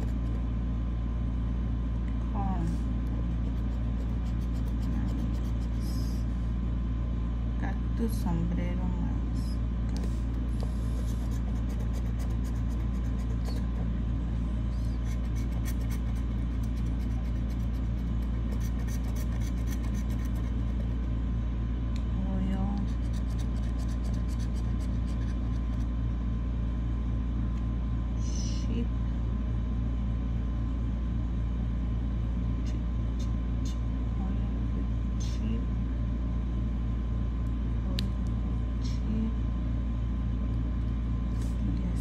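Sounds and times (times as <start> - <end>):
steady low hum: 0.0 - 42.0
lottery ticket scratching: 3.2 - 6.2, 10.8 - 13.9, 14.9 - 21.0, 22.8 - 25.8.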